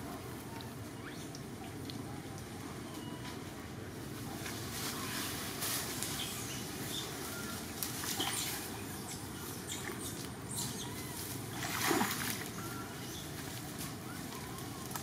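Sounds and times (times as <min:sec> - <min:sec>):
wading through muddy puddle: 0:11.5 - 0:13.0.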